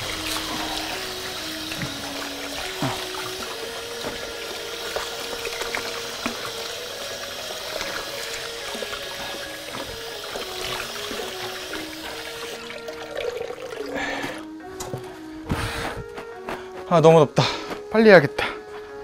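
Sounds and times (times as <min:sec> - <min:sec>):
tap water running into steel basin: 0:00.0 - 0:14.4
water splashing: 0:00.0 - 0:14.4
soft background music: 0:00.0 - 0:19.0.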